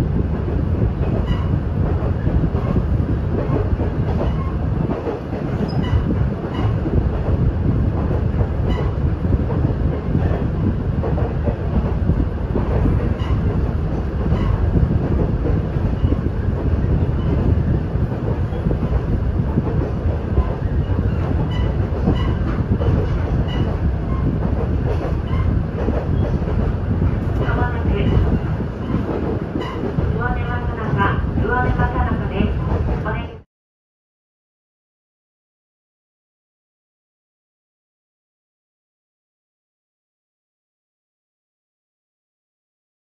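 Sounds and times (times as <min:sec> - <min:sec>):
train engine and wheels rumbling: 0:00.0 - 0:33.5.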